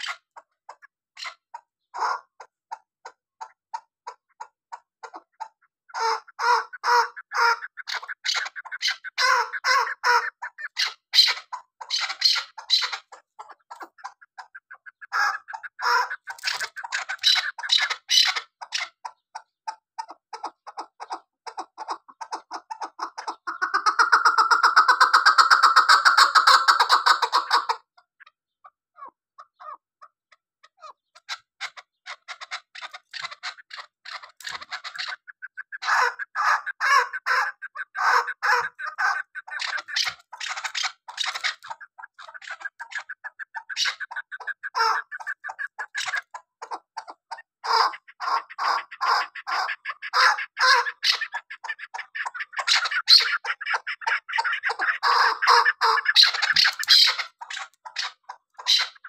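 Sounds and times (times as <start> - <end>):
partridge calling: 0.0 - 59.0.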